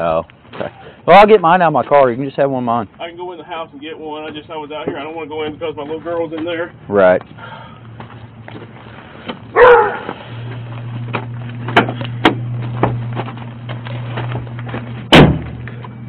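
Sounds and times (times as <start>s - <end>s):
steady low hum: 0.0s - 16.0s
dog barking: 9.6s - 10.1s
loud thump: 15.1s - 15.7s.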